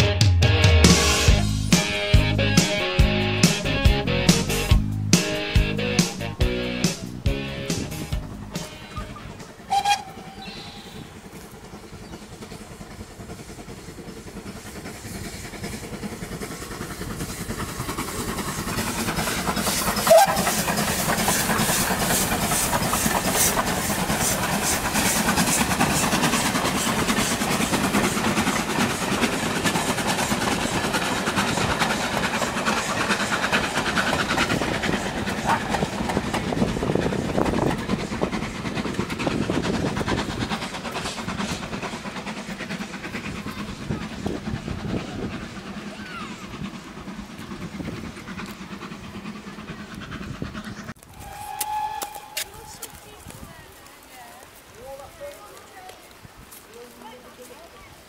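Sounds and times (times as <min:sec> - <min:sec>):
steam locomotive passing: 0:00.0 - 0:58.0
train wheel clatter: 0:01.1 - 0:58.0.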